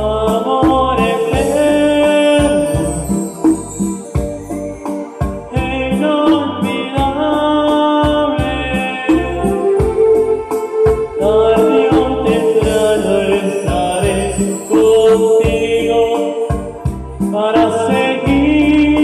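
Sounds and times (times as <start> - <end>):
keyboard organ chords: 0.0 - 19.0
electronic drum beat: 0.3 - 7.2, 8.0 - 15.8.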